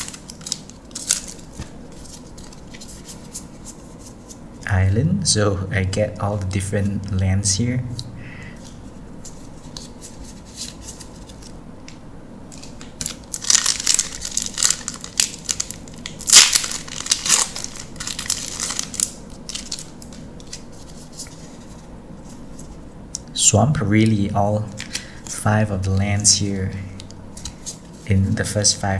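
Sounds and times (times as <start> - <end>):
foil wrapper tearing and crinkling: 0.0 - 3.0, 12.6 - 20.7
faint clicks of cards handled: 27.0 - 27.9.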